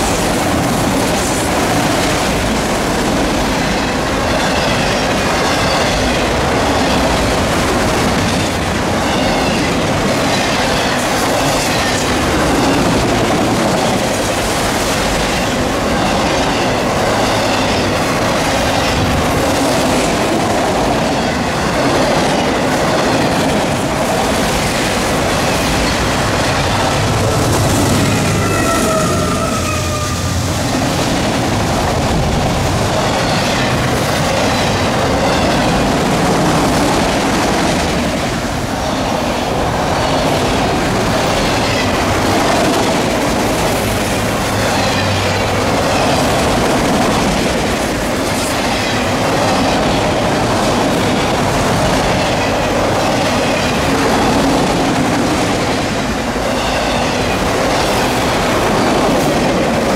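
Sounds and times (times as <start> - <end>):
diesel locomotive whine: 0.0 - 59.9
train wheels rumbling on rail: 0.0 - 59.9
wheel squeal: 28.2 - 30.2.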